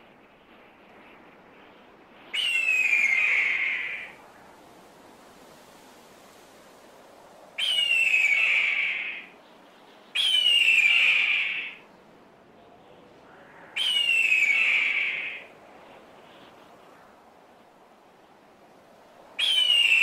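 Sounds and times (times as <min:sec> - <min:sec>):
faint steady hiss: 0:00.0 - 0:20.0.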